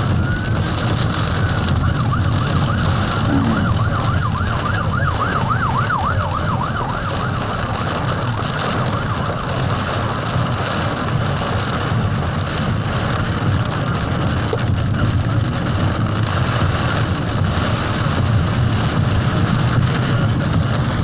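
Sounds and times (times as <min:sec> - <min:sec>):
wavering siren: 0:00.0 - 0:10.1
rain hissing on car: 0:00.0 - 0:21.0
road and engine rumble: 0:00.0 - 0:21.0.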